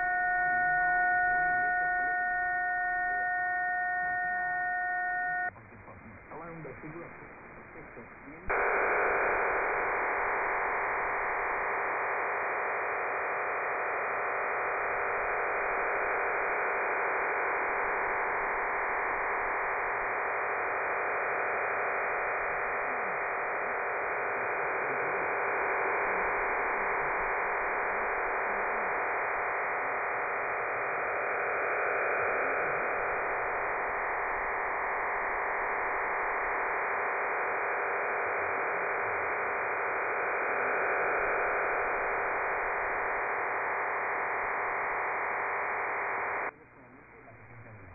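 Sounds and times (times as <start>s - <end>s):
dense radio hiss: 0.0s - 47.9s
faint steady tones: 0.0s - 47.9s.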